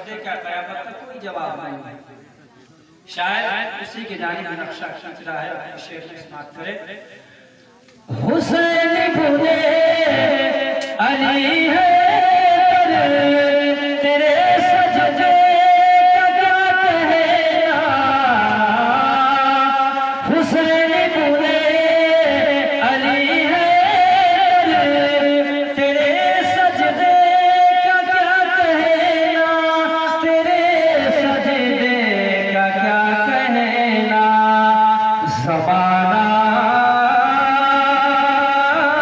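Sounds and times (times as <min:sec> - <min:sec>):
man singing: 0:08.1 - 0:39.0.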